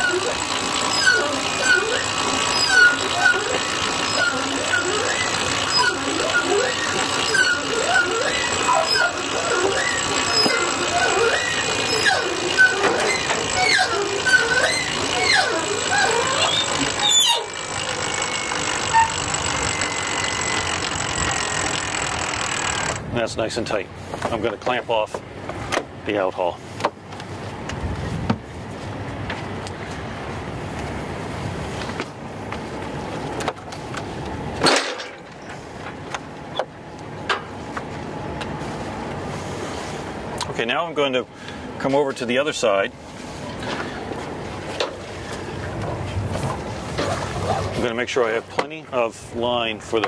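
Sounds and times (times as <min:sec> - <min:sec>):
boat noise: 0:00.0 - 0:50.0
diesel engine running: 0:00.0 - 0:50.0
wind and water noise: 0:00.0 - 0:50.0
deck hardware clicks and knocks: 0:00.1 - 0:23.1, 0:24.1 - 0:26.0, 0:26.8 - 0:28.5, 0:33.2 - 0:38.5, 0:48.5 - 0:48.8.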